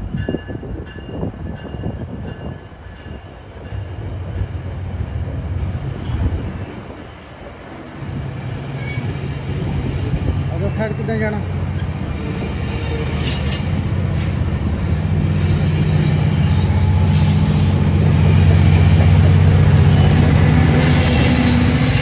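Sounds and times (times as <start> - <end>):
train coaches rumbling past: 0.0 - 22.0
faint high wheel squeal: 8.7 - 9.2, 15.4 - 19.4.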